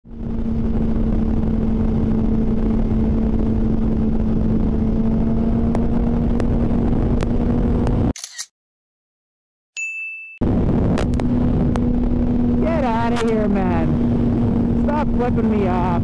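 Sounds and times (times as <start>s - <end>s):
motorcycle engine cruising: 0.0s - 8.1s, 10.4s - 16.0s
wind and road noise: 0.0s - 8.5s, 10.4s - 16.0s.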